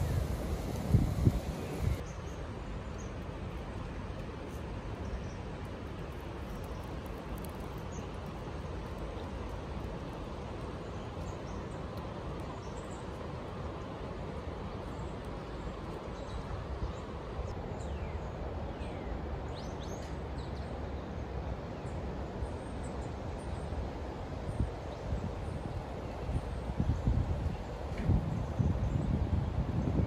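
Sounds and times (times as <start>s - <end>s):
outdoor rushing noise: 0.0s - 2.0s
wind rumbling on microphone: 0.0s - 4.4s, 23.5s - 30.0s.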